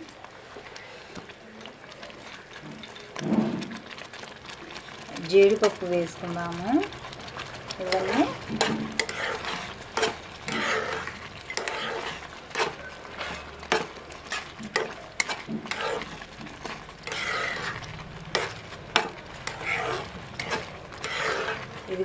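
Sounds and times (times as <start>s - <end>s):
soft sizzle of cooking: 0.0s - 22.0s
spatula scraping a pan: 7.4s - 22.0s.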